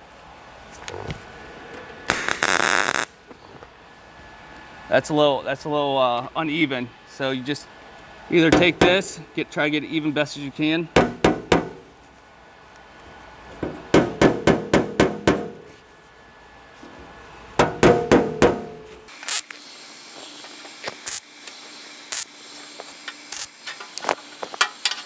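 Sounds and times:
short sharp bursts: 2.1 - 3.2
hammer tapping steel panel: 11.0 - 11.8, 13.6 - 15.7, 17.6 - 18.9.

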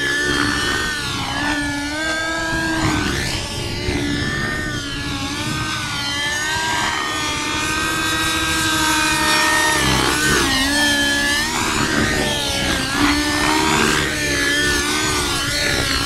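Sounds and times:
model helicopter engine whine: 0.0 - 16.0.

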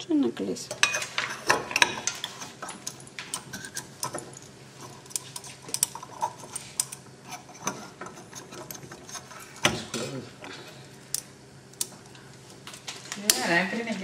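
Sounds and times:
metal parts clicking and tapping: 0.7 - 7.0.

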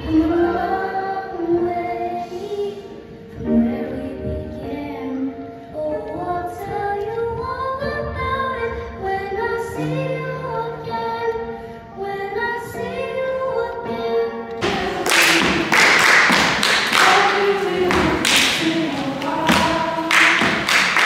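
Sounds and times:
girl singing into microphone: 0.0 - 15.7, 17.0 - 20.7
loud clapping: 14.6 - 21.0.

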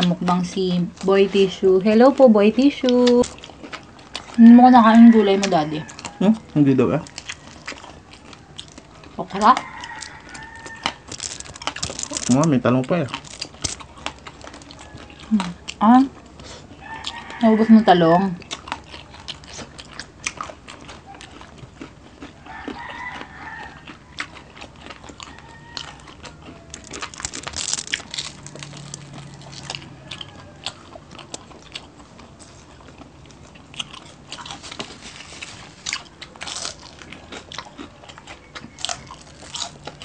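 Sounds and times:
people chewing crispy food: 0.0 - 40.0.

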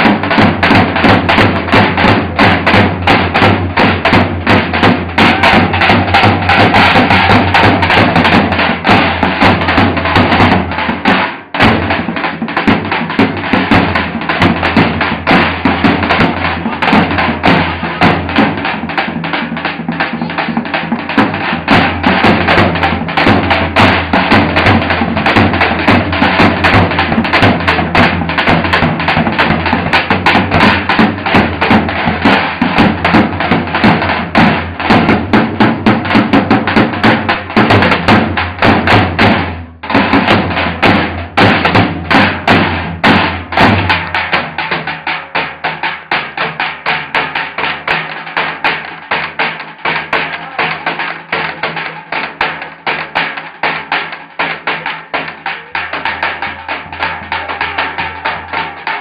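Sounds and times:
bass drums beaten: 0.0 - 44.6.

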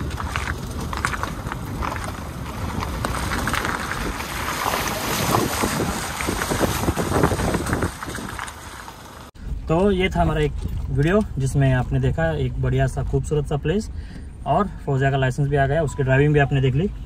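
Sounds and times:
wind buffeting microphone: 0.0 - 8.9.

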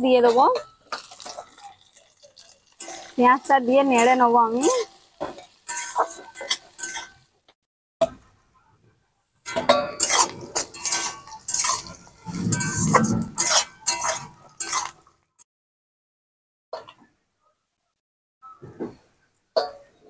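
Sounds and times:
spatula clinking and scraping pan: 0.2 - 7.3, 9.5 - 15.1.

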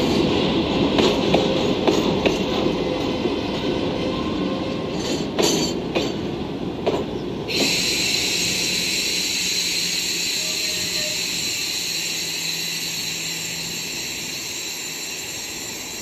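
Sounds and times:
train wheels clicking over rail joints: 0.0 - 3.7, 4.9 - 16.0
steady hiss: 7.5 - 16.0.

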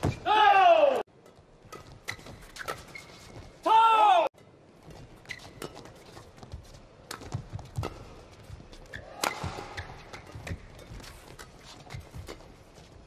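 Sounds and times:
shoes thudding and squeaking: 0.0 - 0.5, 1.4 - 3.7, 4.8 - 13.0
rackets hitting shuttlecock: 7.0 - 12.7.

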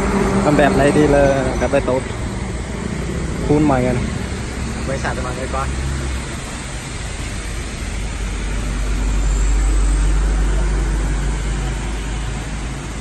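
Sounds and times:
misting nozzle hissing: 0.0 - 13.0
pressure pump humming: 0.0 - 13.0.

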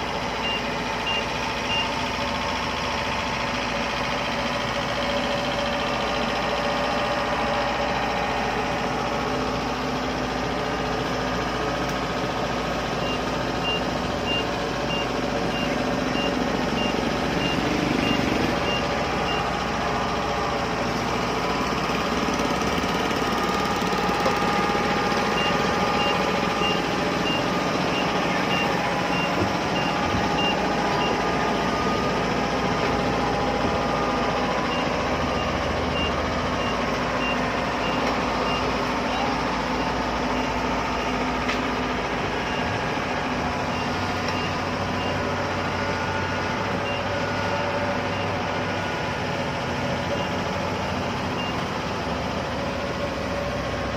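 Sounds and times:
combine harvester diesel engine: 0.0 - 53.9
high-pitched alarm beeps: 0.4 - 2.1, 13.0 - 19.6, 25.2 - 32.1, 33.6 - 40.6, 43.6 - 45.4, 46.7 - 49.2.

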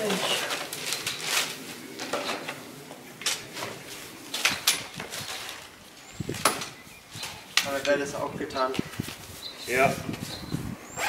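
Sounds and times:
broom sweeping on asphalt: 8.9 - 10.8.

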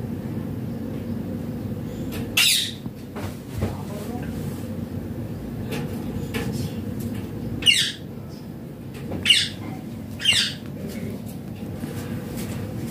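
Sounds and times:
parakeet squawks: 2.4 - 2.8, 7.6 - 8.1, 9.2 - 9.6, 10.2 - 10.6.

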